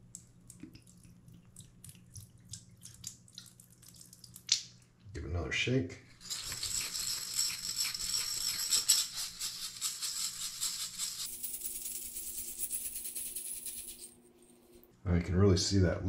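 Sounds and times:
bbs rattling in glass bottle: 0:06.2 - 0:14.2.

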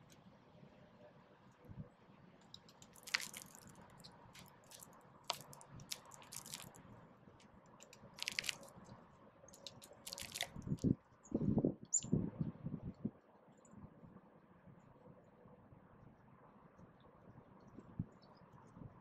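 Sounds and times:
birds cracking seeds: 0:02.4 - 0:11.0.

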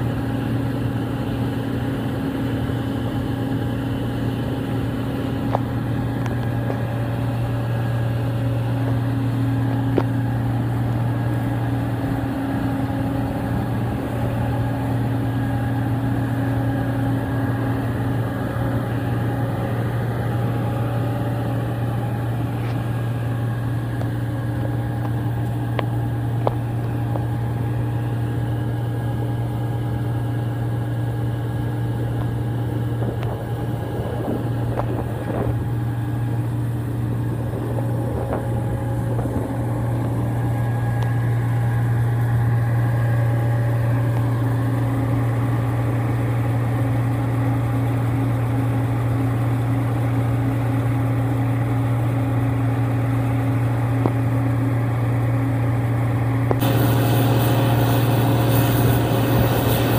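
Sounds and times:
combine harvester drone: 0:00.0 - 0:59.9
grain pouring into trailer: 0:56.6 - 0:59.9.

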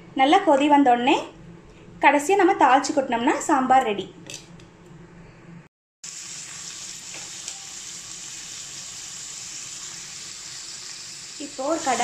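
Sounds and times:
food sizzling in hot oil: 0:06.0 - 0:12.0.

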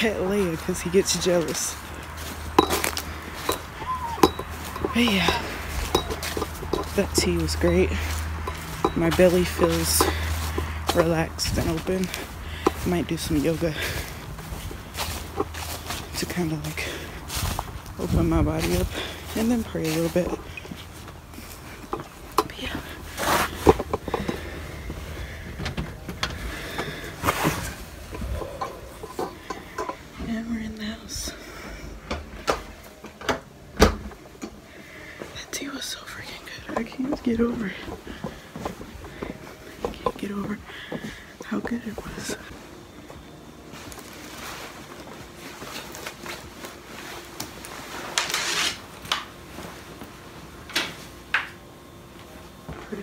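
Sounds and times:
rustling scrape: 0:23.0 - 0:25.4, 0:26.4 - 0:30.1, 0:43.7 - 0:49.0.

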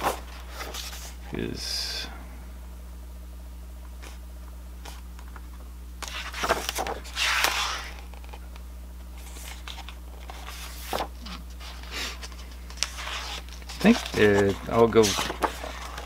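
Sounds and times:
paper pages turning: 0:00.0 - 0:01.2, 0:06.0 - 0:08.4, 0:09.2 - 0:16.0
steady low hum: 0:00.0 - 0:16.0.

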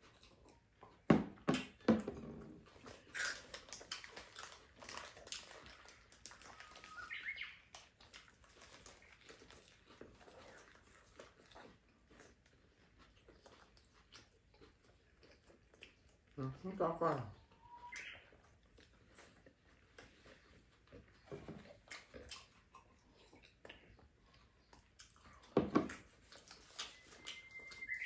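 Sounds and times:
birds chirping: 0:06.5 - 0:07.7, 0:17.2 - 0:18.4, 0:26.9 - 0:28.0.

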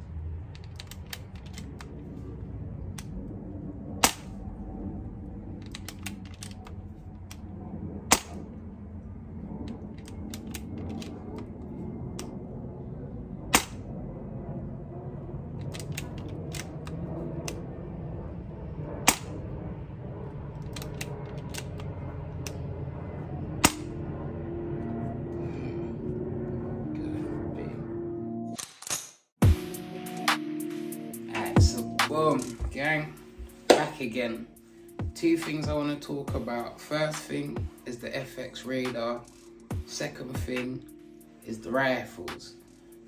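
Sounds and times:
air rifle shots: 0:04.0 - 0:04.4, 0:08.1 - 0:08.5.

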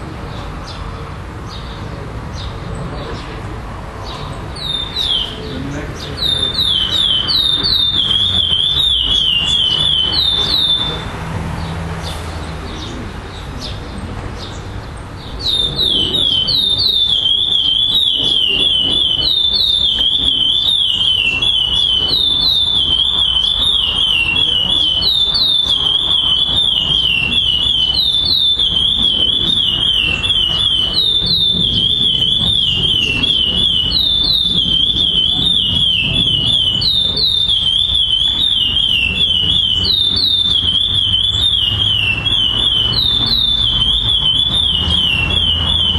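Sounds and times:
finch singing whistled notes: 0:04.0 - 0:11.7, 0:12.7 - 0:45.9.

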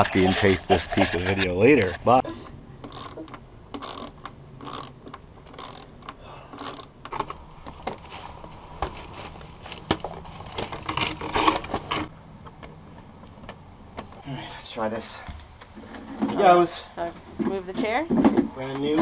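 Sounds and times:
ratchet clicking: 0:02.8 - 0:06.9
plastic parts rattling: 0:06.6 - 0:12.1
corrugated tube being handled: 0:07.2 - 0:12.1.

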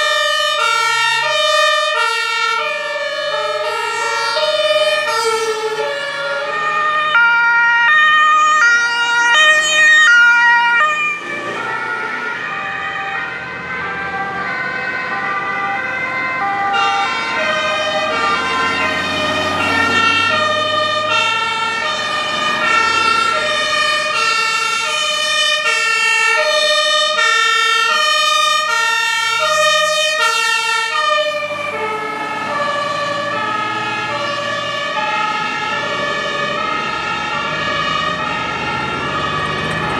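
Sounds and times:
two-tone emergency sirens: 0:00.0 - 0:39.9
vehicle engine noise: 0:00.0 - 0:39.9.

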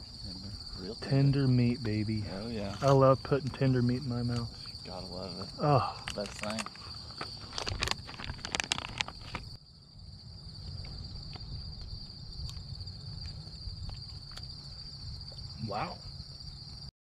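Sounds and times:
high-pitched insect chorus: 0:00.0 - 0:16.9
close rustling and clicks: 0:06.0 - 0:09.5.

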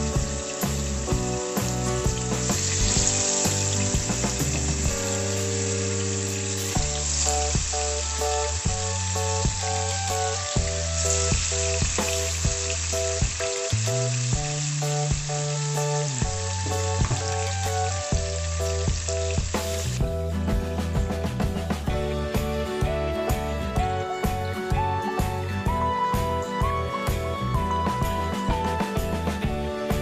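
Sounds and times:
fish sizzling in a pan: 0:00.0 - 0:20.0
background music with steady beat: 0:00.0 - 0:30.0.

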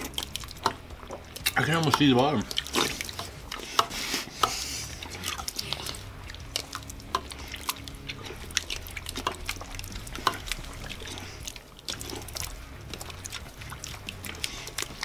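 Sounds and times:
wet slurping and eating: 0:00.0 - 0:15.0
spoons clicking on metal bowl: 0:01.4 - 0:04.6.

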